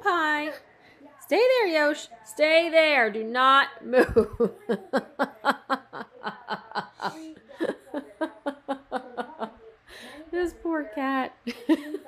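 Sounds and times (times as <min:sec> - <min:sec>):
woman laughing: 0:04.0 - 0:09.5, 0:11.5 - 0:12.0.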